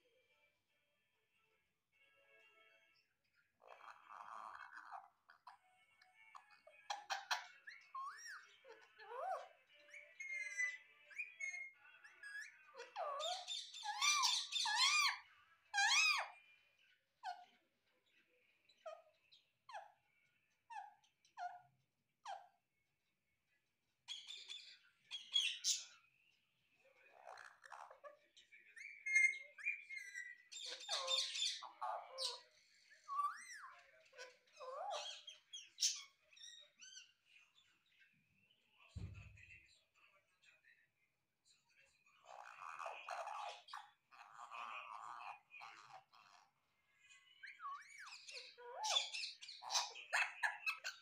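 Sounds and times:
parakeet calling: 3.6 - 16.4, 24.1 - 26.0, 28.7 - 32.5, 33.1 - 37.2, 42.2 - 46.5, 47.4 - 51.0
parakeet shrill whistled calls: 9.1 - 15.2.

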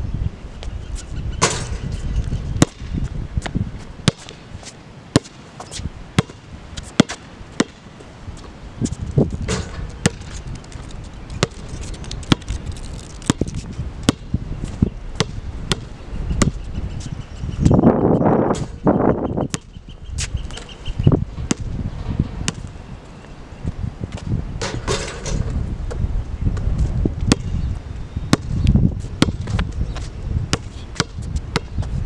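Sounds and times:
basketball bouncing: 2.6 - 2.9, 4.0 - 4.4, 5.2 - 5.4, 6.2 - 6.4, 7.0 - 7.8, 9.4 - 10.4, 11.4 - 14.3, 15.2 - 16.6, 21.5 - 21.8, 27.3 - 27.5, 28.3 - 28.6, 29.2 - 29.7, 30.5 - 31.8.

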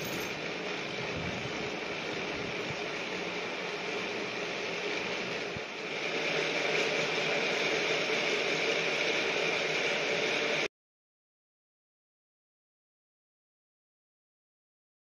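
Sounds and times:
funicular carriage running on rails: 0.0 - 2.2.

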